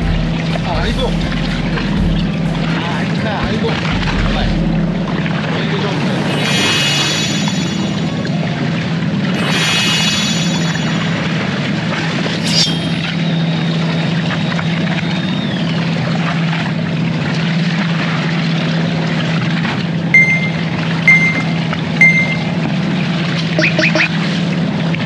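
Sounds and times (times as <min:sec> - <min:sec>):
boat engine droning: 0:00.0 - 0:25.0
short electronic beeps: 0:06.2 - 0:08.2, 0:09.4 - 0:11.2, 0:20.2 - 0:22.6, 0:23.6 - 0:24.1.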